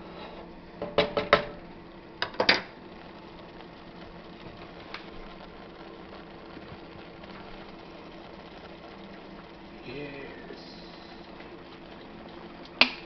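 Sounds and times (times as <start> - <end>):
faint steady hiss: 0.0 - 13.0.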